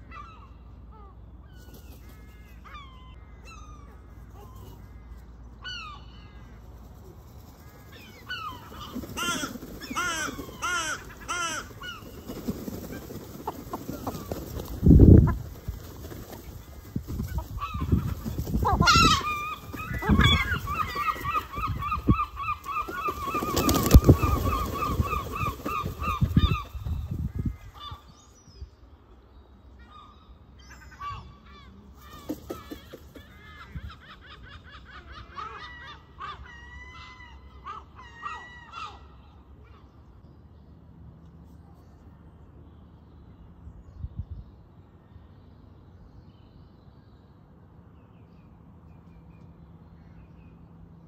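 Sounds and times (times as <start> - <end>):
gulls calling: 0.0 - 15.6, 16.2 - 28.2
wings flapping: 6.8 - 27.2, 32.0 - 33.4
gull gliding call: 17.3 - 26.8.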